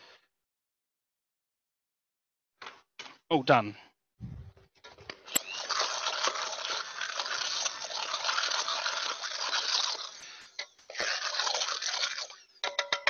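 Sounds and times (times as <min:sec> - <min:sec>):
stick blender whirring: 0:05.3 - 0:12.6.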